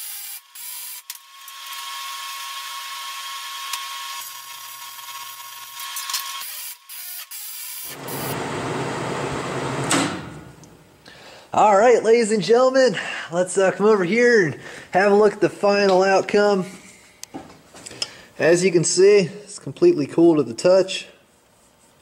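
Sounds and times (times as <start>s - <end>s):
welding hiss with high tone: 0.0s - 1.1s, 1.7s - 8.4s
rough air hammer noise: 4.2s - 10.5s.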